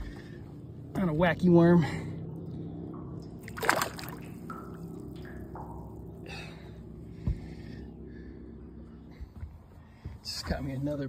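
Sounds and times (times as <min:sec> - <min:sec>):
low steady hum: 0:00.0 - 0:11.0
water splashing and dripping: 0:02.9 - 0:06.9.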